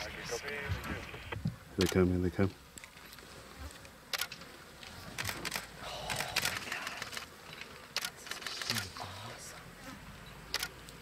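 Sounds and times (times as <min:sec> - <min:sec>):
flies buzzing: 0:00.0 - 0:11.0
sharp clicks: 0:01.2 - 0:02.0, 0:04.1 - 0:04.4, 0:05.2 - 0:09.0, 0:10.5 - 0:11.0
wings flapping: 0:08.0 - 0:09.0.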